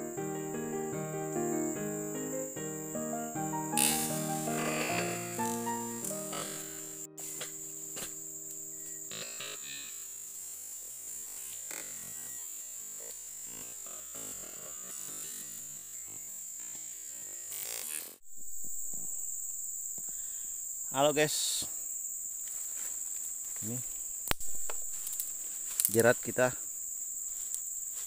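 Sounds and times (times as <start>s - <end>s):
keyboard music: 0.0s - 9.4s
insects droning: 0.0s - 28.0s.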